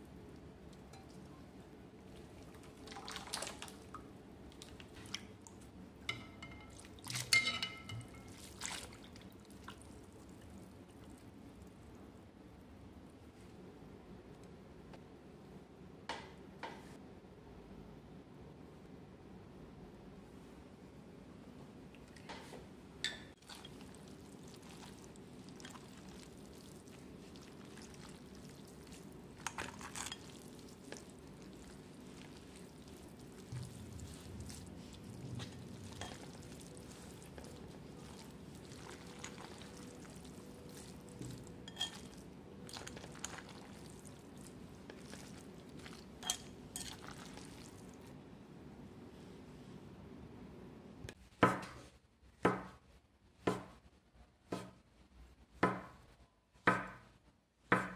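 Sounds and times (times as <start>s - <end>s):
low steady hum: 0.0s - 51.2s
dishes and utensils clinking: 0.9s - 1.5s, 6.0s - 8.5s, 35.3s - 36.6s, 40.8s - 43.4s, 45.8s - 47.5s.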